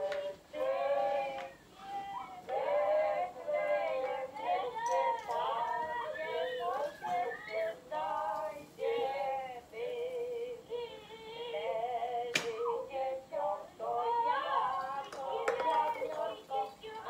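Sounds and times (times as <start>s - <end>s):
high-pitched singing with music: 0.0s - 17.0s.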